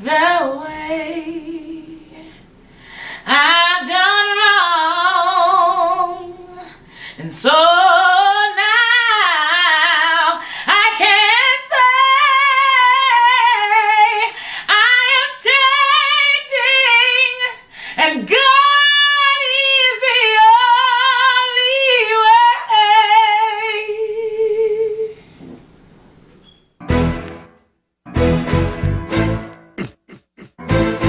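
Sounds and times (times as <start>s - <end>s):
woman singing unaccompanied: 0.0s - 2.2s, 3.2s - 25.2s.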